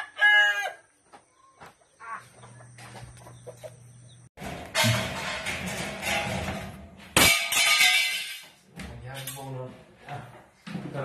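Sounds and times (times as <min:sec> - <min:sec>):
rooster crowing: 0:00.0 - 0:01.0
chickens clucking: 0:01.1 - 0:04.3.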